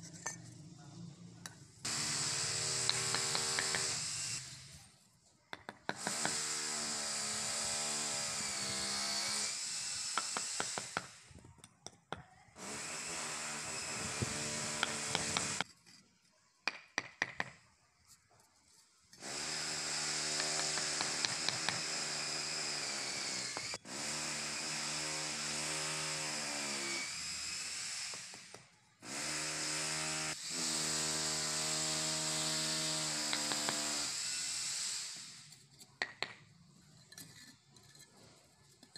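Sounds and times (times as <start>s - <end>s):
power tool running: 1.8s - 4.6s, 6.0s - 11.2s, 12.6s - 15.6s, 19.2s - 35.6s
hammer tapping bricks: 2.7s - 4.0s, 5.5s - 6.4s, 10.1s - 12.4s, 14.7s - 15.8s, 16.6s - 17.6s, 20.2s - 22.0s, 33.2s - 33.9s, 35.8s - 36.5s.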